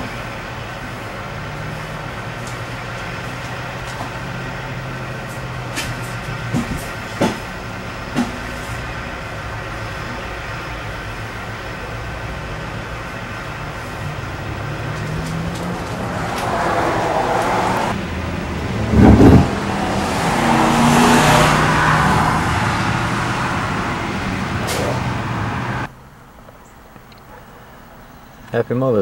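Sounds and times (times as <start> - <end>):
truck engines running: 0.0 - 29.0
loud blast of low noise: 18.0 - 21.4.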